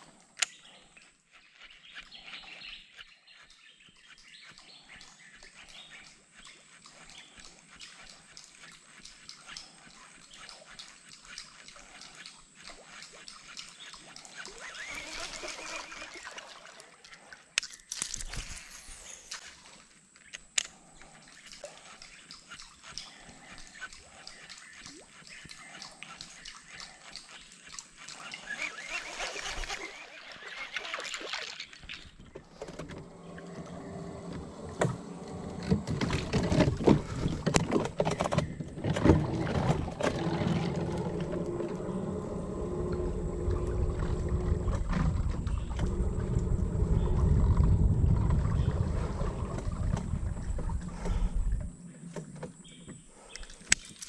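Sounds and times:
water splashing against hull: 21.4 - 54.0
low rumble: 40.7 - 51.8.

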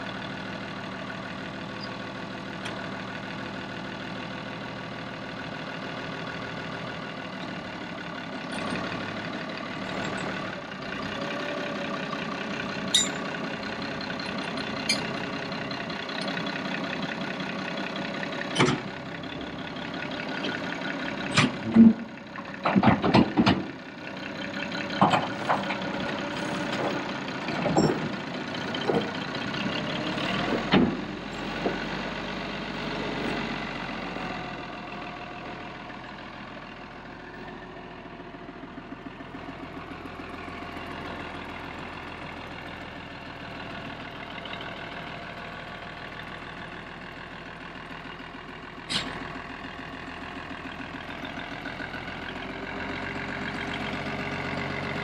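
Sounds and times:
tractor diesel engine idling: 0.0 - 55.0
loud sharp knocks and clunks: 22.6 - 23.7.

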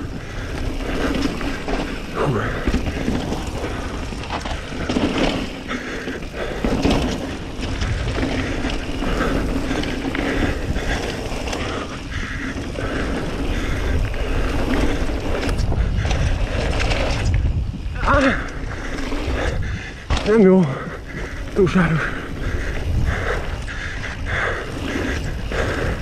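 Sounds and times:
bike rattling over bumps: 0.0 - 26.0
bike tyres on dirt: 0.0 - 26.0
wind buffeting microphone: 0.0 - 26.0.

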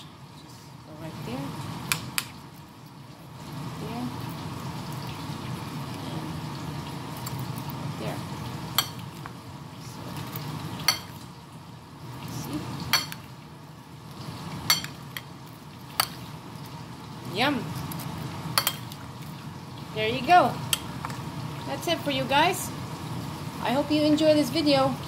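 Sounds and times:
metal spoon clinking on plate: 14.7 - 15.0.

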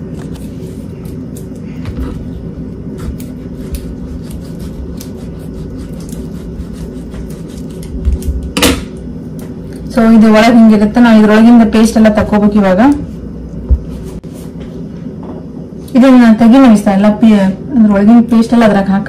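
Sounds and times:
steady low hum: 0.0 - 19.0
knife cutting on wooden board: 3.0 - 8.2.

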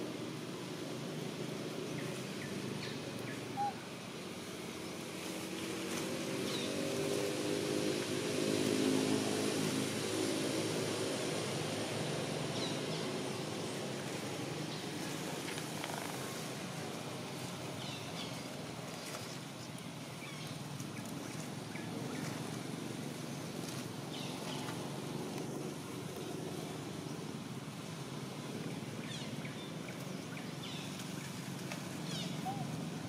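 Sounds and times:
distant engine humming: 1.0 - 19.0.

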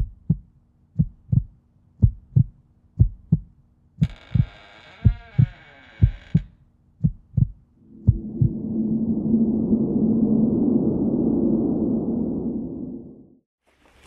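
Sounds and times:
heartbeat thumps: 0.0 - 8.6
hissing glide: 7.8 - 13.4.

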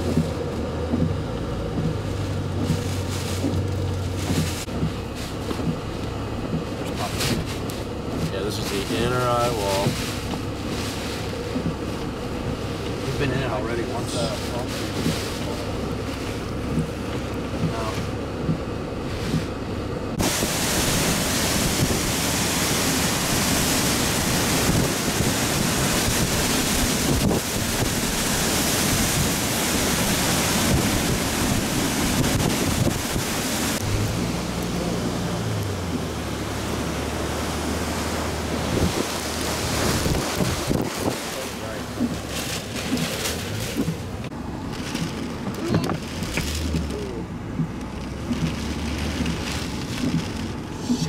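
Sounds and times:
driving rain: 0.0 - 51.0
hurricane winds blowing hard: 20.1 - 47.4.

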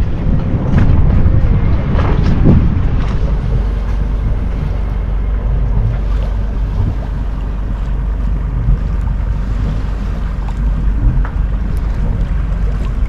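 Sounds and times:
small waves splashing: 0.0 - 13.0
wind on microphone: 0.0 - 13.0.

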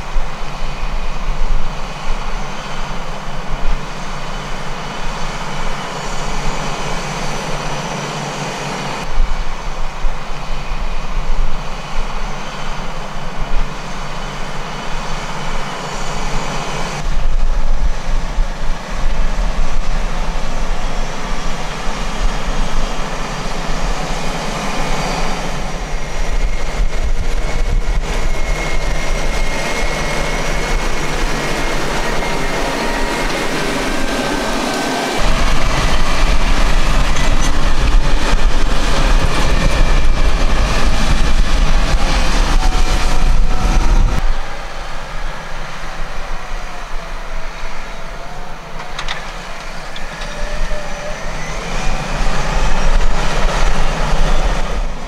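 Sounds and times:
tractor engine under load: 20.4 - 42.6, 43.2 - 54.9.

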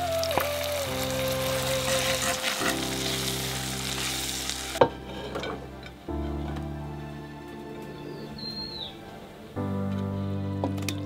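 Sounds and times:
curry sizzling in a pot: 0.3 - 4.9.

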